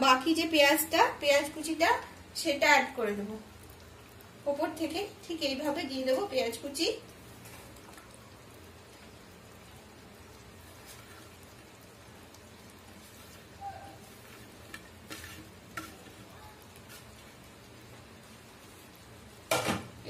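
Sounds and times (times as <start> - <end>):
curry sizzling in a pan: 0.0 - 20.0
onions tipped into pan: 19.5 - 20.0.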